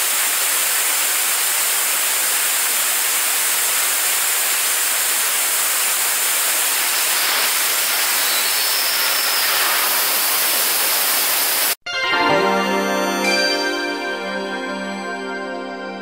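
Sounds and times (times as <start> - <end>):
rocket engine roaring hiss: 0.0 - 11.8.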